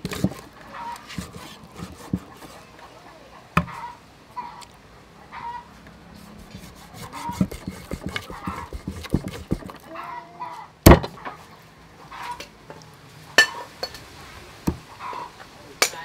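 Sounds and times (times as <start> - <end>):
knife chopping fish: 0.0 - 0.4, 1.1 - 2.6, 6.4 - 9.8
knife chopping into wooden block: 0.0 - 0.4, 1.1 - 2.3, 6.6 - 9.8
faint animal calls: 2.3 - 5.8, 9.8 - 12.5.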